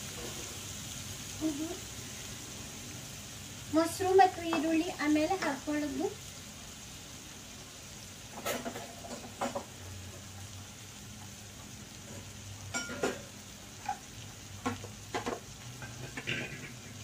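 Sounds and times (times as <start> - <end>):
spinach sizzling in a wok: 0.0 - 17.0
kitchen utensils clinking: 8.4 - 9.7, 12.7 - 14.0, 15.2 - 16.9.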